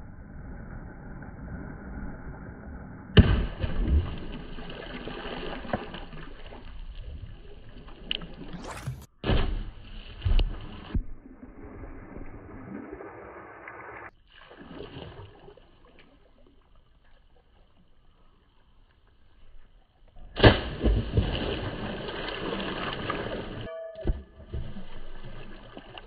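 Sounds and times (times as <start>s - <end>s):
objects splashing into pool: 3.2s - 17.0s, 20.2s - 26.0s
churning water: 3.2s - 17.8s, 20.4s - 26.0s
water lapping: 3.5s - 9.1s.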